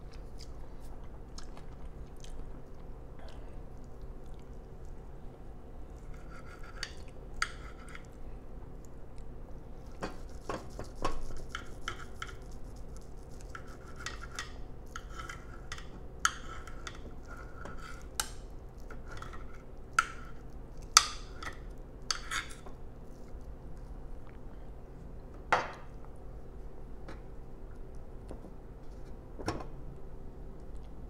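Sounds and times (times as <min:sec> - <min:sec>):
knife and fork scraping a plate: 0:06.0 - 0:08.1, 0:10.0 - 0:12.6, 0:13.2 - 0:20.4, 0:21.0 - 0:22.7.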